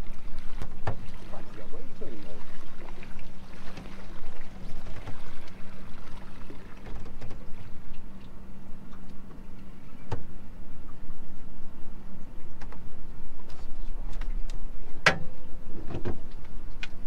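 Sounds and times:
outboard motor idling: 0.0s - 16.7s
water splashing against hull: 0.0s - 17.0s.

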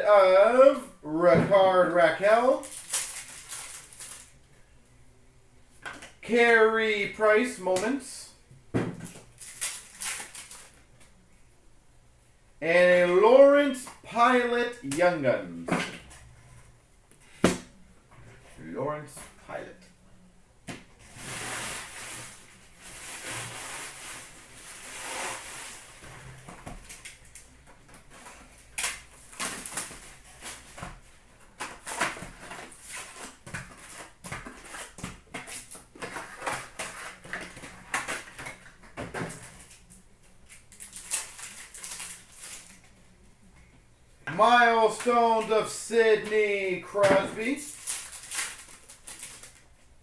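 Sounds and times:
wrapper and cardboard crinkling: 2.2s - 4.4s, 9.1s - 10.9s, 21.0s - 43.0s, 46.9s - 49.9s.

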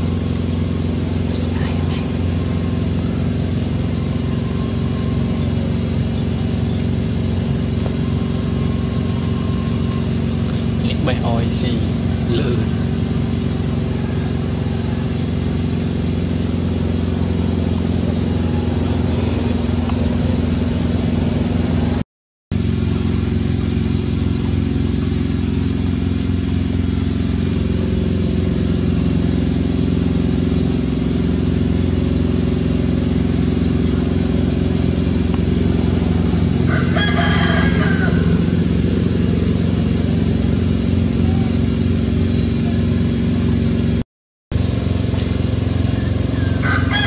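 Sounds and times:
engine running steadily: 0.0s - 47.0s.

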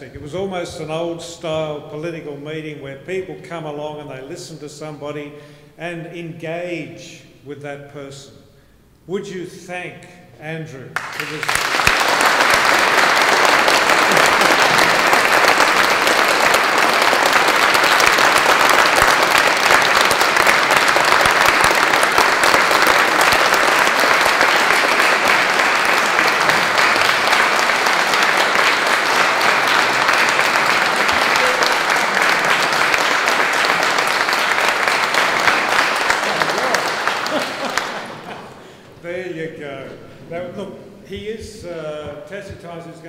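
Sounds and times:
audience applauding: 11.0s - 38.7s.

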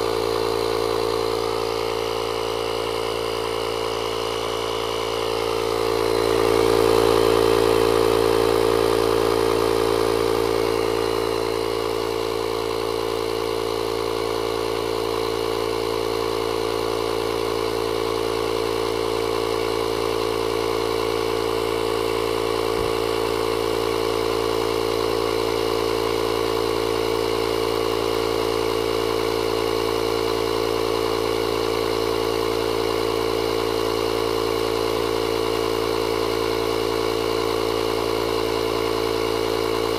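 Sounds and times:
air compressor droning: 0.0s - 39.9s.

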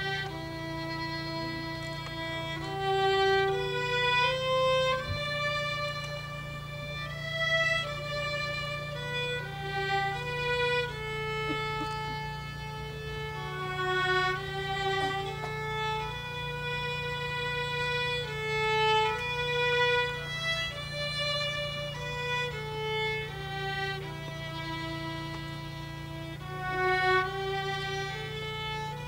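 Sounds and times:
solo violin melody: 0.0s - 29.0s
steady low hum: 0.0s - 29.0s.

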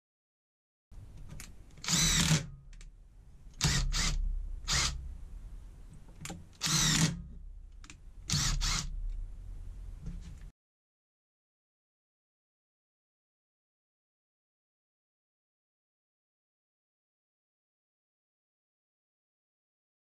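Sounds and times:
impact driver motor whine: 1.8s - 2.4s, 3.6s - 5.0s, 6.6s - 7.2s, 8.3s - 8.9s.

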